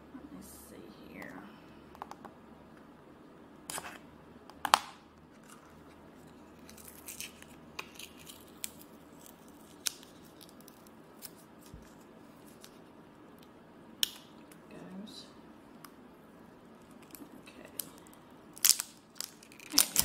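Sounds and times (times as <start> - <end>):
craft knife cutting plastic wrap: 18.6 - 20.0.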